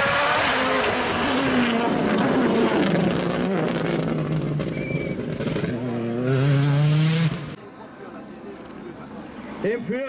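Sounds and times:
rally car engine under hard driving: 0:00.0 - 0:07.6.

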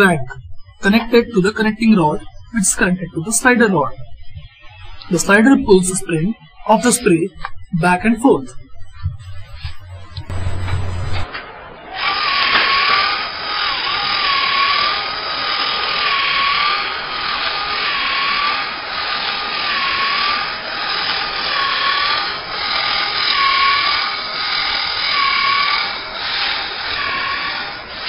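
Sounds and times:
small electric motor whining: 0:11.9 - 0:28.0.

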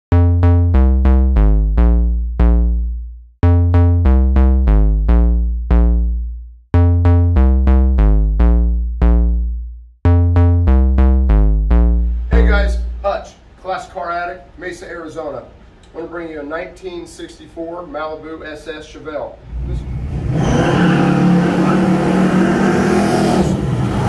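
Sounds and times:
synthesizer riff over deep bass: 0:00.1 - 0:13.1, 0:19.4 - 0:24.0.

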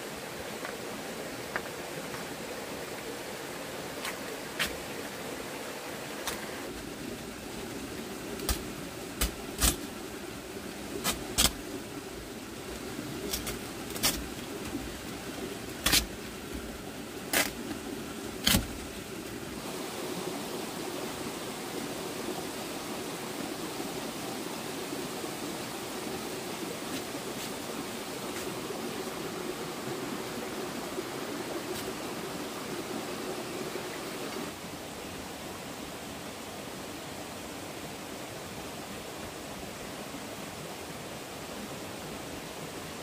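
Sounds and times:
stream flowing: 0:00.0 - 0:43.0.

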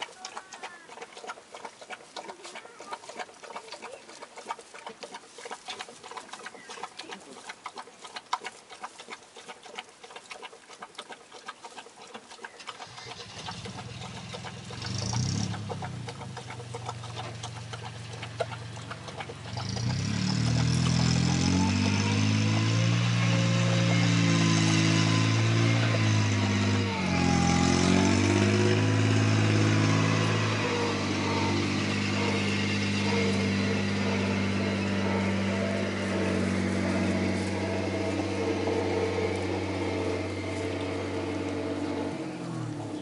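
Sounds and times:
engine running: 0:00.0 - 0:43.0
straw crackling and rustling: 0:27.2 - 0:43.0.

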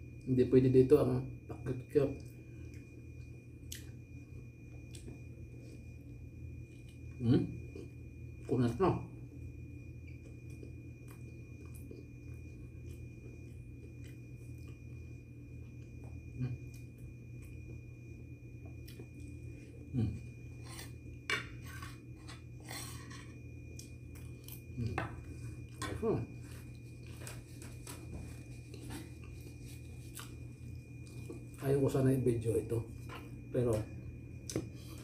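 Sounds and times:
steady low hum: 0:00.0 - 0:35.0
chewing: 0:26.6 - 0:31.6.

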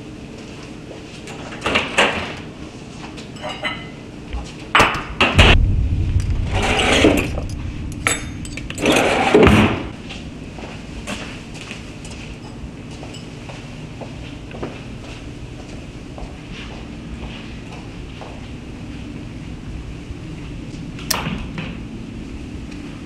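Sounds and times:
heavy thump: 0:05.4 - 0:10.0.

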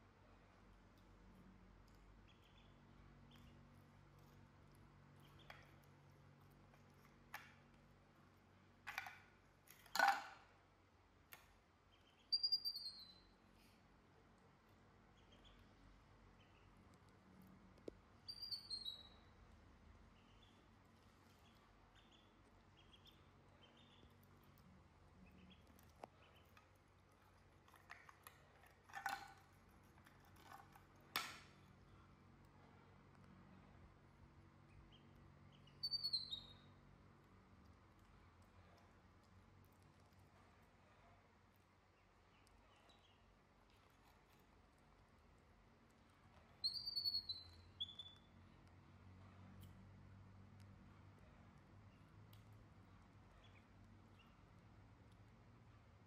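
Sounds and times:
duckling peeps: 0:02.0 - 0:03.7, 0:11.9 - 0:13.4, 0:15.1 - 0:17.0, 0:18.2 - 0:19.4, 0:20.1 - 0:27.4, 0:34.6 - 0:36.8, 0:46.5 - 0:48.3.

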